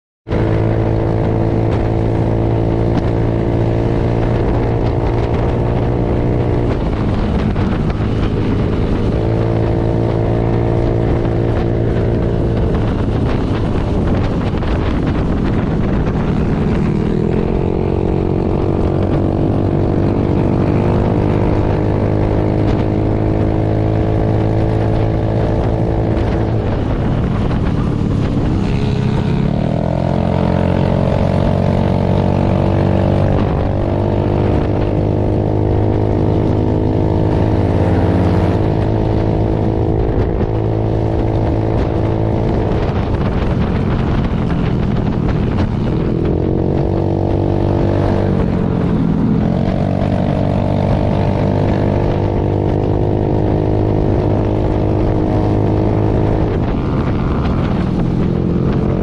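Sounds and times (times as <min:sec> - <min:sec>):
wind rushing over microphone: 0:00.3 - 0:59.0
scooter engine cruising: 0:00.4 - 0:59.0.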